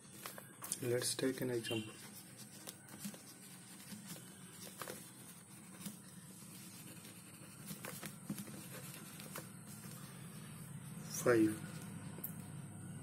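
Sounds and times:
low steady hum: 0.0s - 13.0s
pen scratching on paper: 1.8s - 10.4s.

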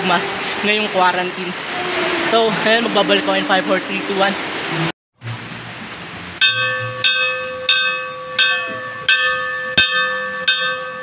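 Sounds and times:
church bell ringing: 6.4s - 11.0s.

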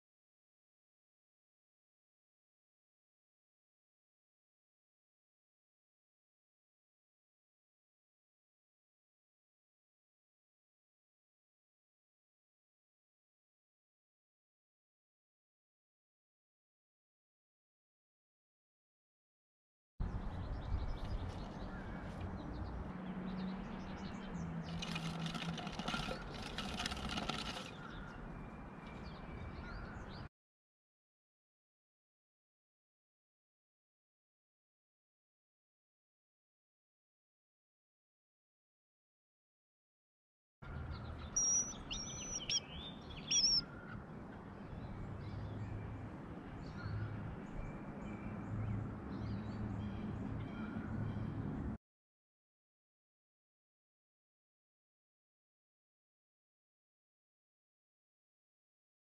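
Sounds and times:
outdoor background noise: 20.0s - 30.3s, 40.6s - 51.8s
songbird chirping: 20.0s - 30.3s, 40.6s - 51.4s
small birds chirping: 40.7s - 44.0s.

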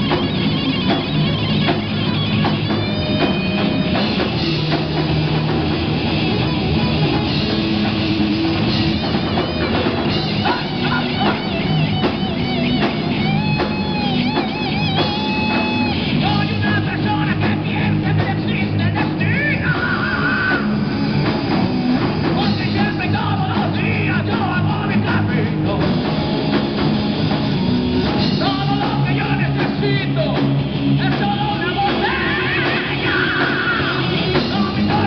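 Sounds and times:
drums: 0.0s - 35.0s
electric guitars: 0.0s - 35.0s
man singing: 10.3s - 11.6s, 16.2s - 20.8s, 22.4s - 26.4s, 28.2s - 35.0s.

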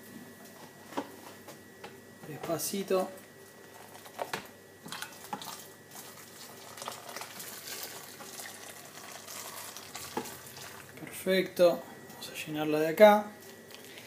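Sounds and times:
water pouring into a pot: 4.9s - 11.0s.

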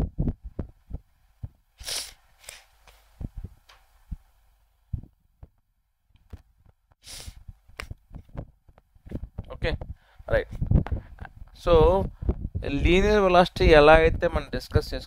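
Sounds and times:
short hissy bursts: 1.8s - 3.1s, 7.0s - 7.4s.

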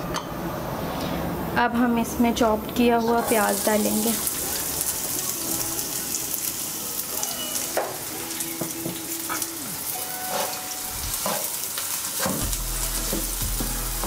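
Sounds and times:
onion sizzling in hot oil: 3.1s - 14.0s.

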